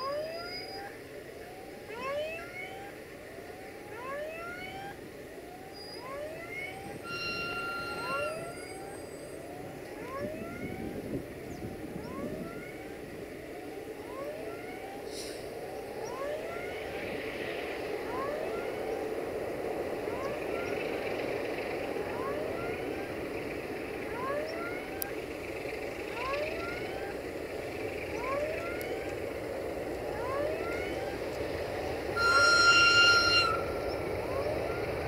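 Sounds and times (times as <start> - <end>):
locomotive diesel engine running: 0.0 - 35.0
short rising chirp: 5.8 - 8.9.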